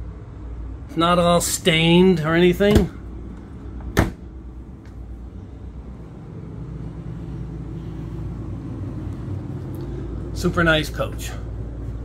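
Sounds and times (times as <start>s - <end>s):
steady low hum: 0.0s - 12.0s
wooden cabinet door shutting: 2.7s - 3.0s, 3.9s - 4.2s.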